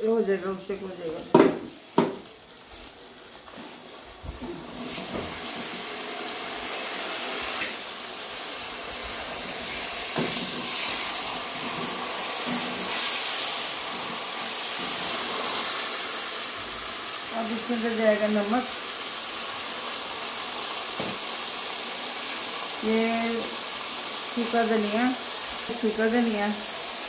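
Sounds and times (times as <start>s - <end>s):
meat sizzling in hot oil: 0.0s - 27.0s
wooden spoon knocking in pot: 1.3s - 2.3s.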